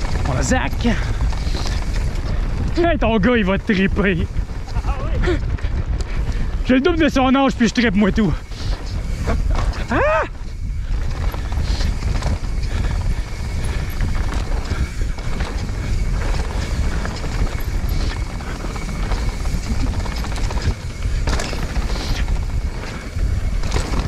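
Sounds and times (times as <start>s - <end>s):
bike rattles and knocks: 0.0s - 24.0s
tyres rumbling on dirt: 0.0s - 24.0s
wind rushing over microphone: 0.0s - 24.0s.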